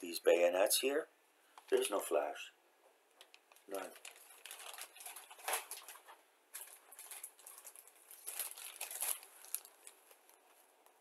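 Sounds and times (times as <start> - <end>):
plastic bags crinkling: 3.2 - 11.0.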